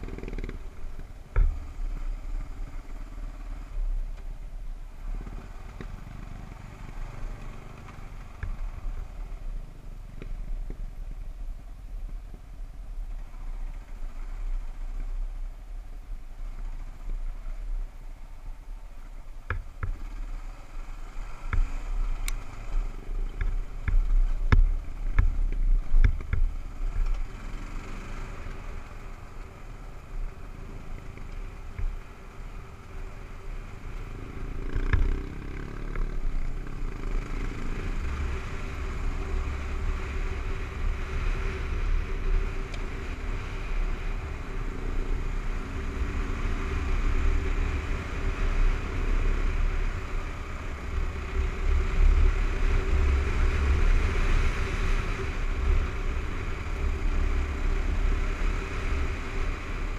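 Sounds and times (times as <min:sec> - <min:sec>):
motorcycle engine running: 0:19.4 - 0:59.9.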